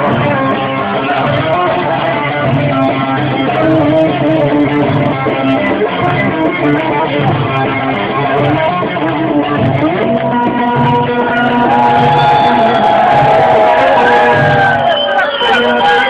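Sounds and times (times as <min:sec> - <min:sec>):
pulsing bass: 0:00.0 - 0:16.0.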